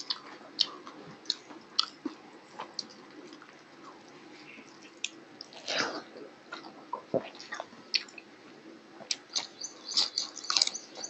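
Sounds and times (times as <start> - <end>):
man chewing wetly: 9.0 - 11.0.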